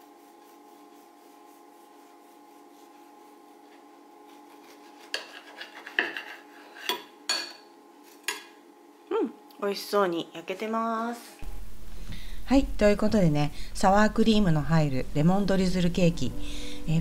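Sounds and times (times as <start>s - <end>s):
knife sawing through cake: 0.0s - 6.8s
knife scraping a china plate: 4.3s - 7.1s.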